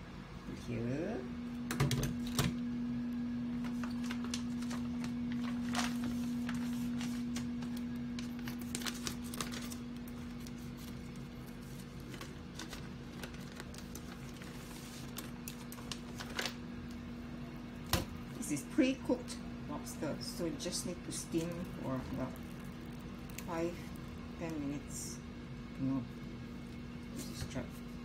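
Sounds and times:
steady low hum: 0.0 - 28.0
plastic packaging crinkling: 3.6 - 17.0.

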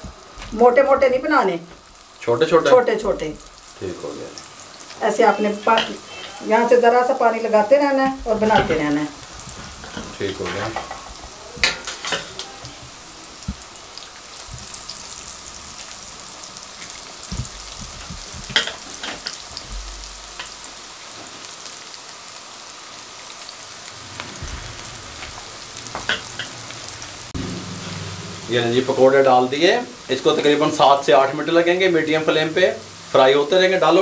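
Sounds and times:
deep-frying sizzle with crackles: 0.0 - 34.0.

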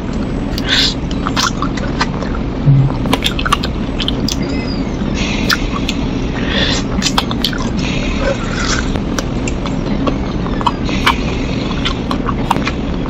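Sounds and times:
steady low rumble: 0.0 - 13.0
lip smacks and sucking: 0.5 - 2.1, 5.4 - 6.0, 6.7 - 12.8
wet chewing: 0.5 - 2.2, 6.7 - 12.8.

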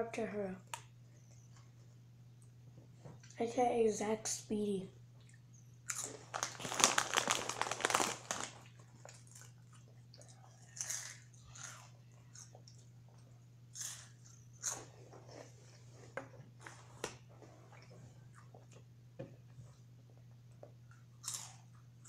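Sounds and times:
crunching and chewing snacks: 5.2 - 15.6, 20.5 - 22.0.

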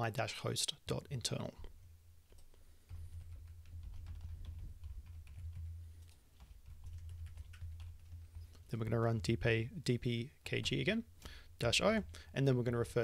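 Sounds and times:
low steady hum: 0.0 - 13.0
computer keyboard typing: 2.3 - 8.7.

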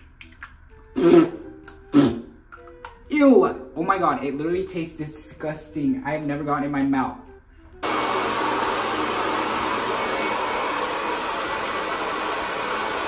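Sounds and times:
hair dryer blowing: 7.8 - 13.0.

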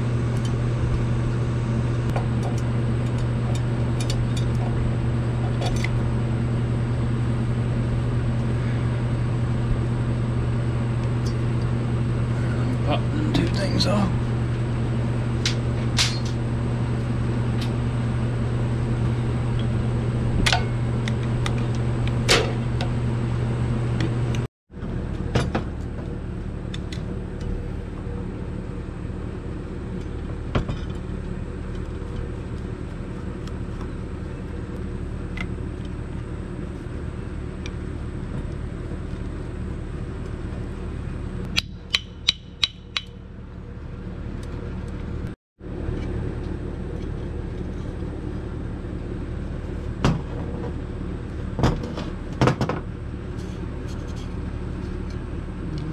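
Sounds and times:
steady low hum: 0.0 - 55.9
hand tools clicking on metal: 41.5 - 43.2.

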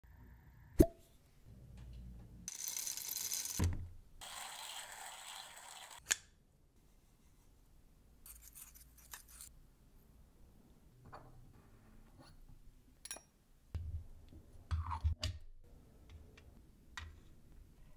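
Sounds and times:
hand grinder grinding coffee beans: 4.2 - 6.0.

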